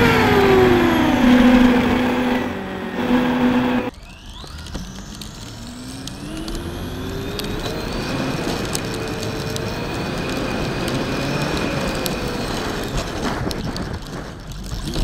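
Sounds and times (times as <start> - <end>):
electric motor whine: 0.0 - 13.5
sharp ticks from road: 3.9 - 15.0
tyre and wind noise: 6.4 - 15.0.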